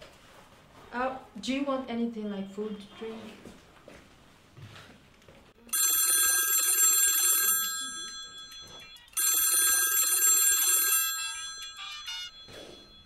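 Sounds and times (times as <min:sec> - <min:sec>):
mobile phone ringtone: 0:05.7 - 0:13.0.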